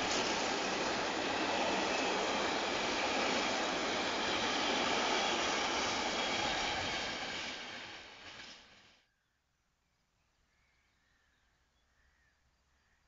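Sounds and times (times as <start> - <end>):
freight train rolling on rails: 0.0 - 9.0.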